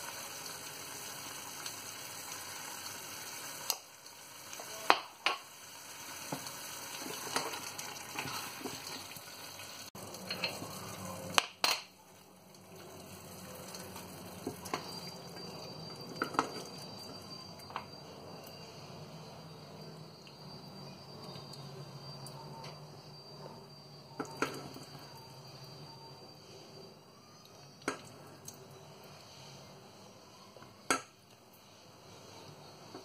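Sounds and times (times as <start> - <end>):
squash sizzling in a pot: 0.0 - 22.2.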